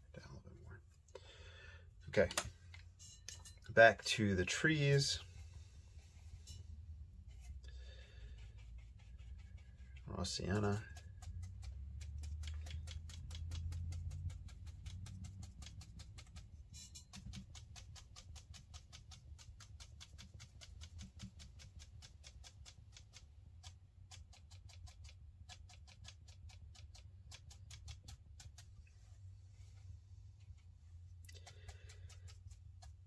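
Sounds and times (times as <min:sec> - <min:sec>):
brush tapping on paper: 0:08.2 - 0:28.7, 0:31.3 - 0:33.0.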